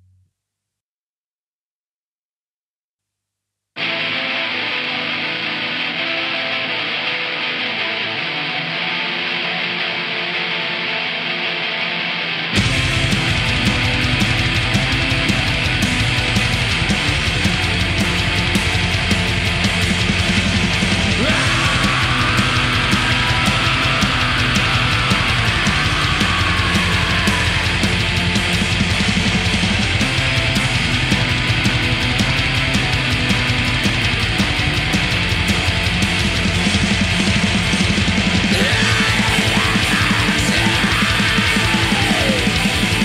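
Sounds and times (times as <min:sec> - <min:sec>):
distorted guitars: 0:03.8 - 0:43.0
fast dense drumming: 0:12.6 - 0:43.0.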